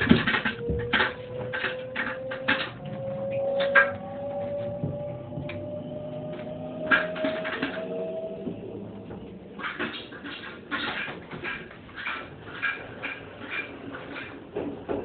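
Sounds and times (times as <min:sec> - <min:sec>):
train motors whining: 0:00.0 - 0:10.8.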